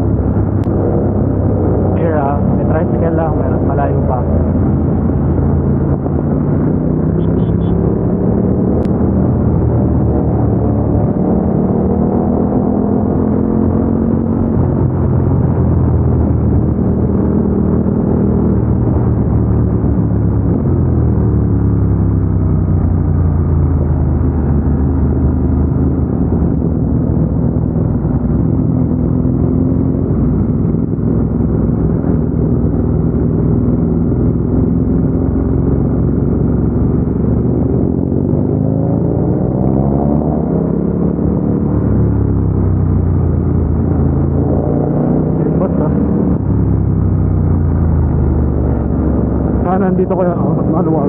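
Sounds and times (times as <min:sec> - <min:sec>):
motorcycle engine running: 0:00.0 - 0:40.1.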